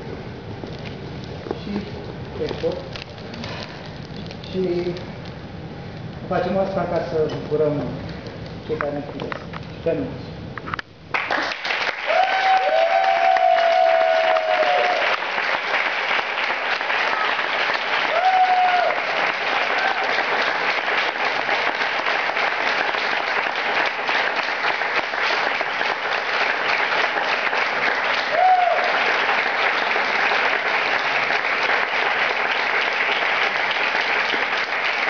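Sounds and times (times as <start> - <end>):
audience applauding: 11.1 - 35.0
cheering shouts: 12.0 - 15.2, 18.0 - 20.3, 28.2 - 29.0.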